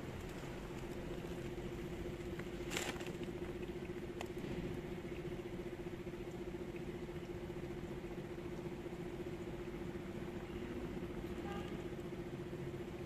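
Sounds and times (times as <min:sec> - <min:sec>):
steady hum: 0:00.0 - 0:13.0
rustling: 0:02.6 - 0:03.2.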